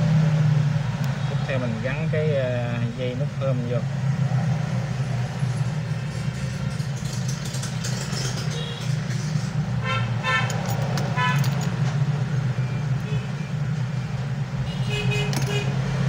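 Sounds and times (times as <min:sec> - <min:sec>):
road traffic rumble: 0:00.0 - 0:16.0
vehicle horn beeping: 0:09.8 - 0:10.5, 0:11.2 - 0:11.5, 0:14.6 - 0:15.8.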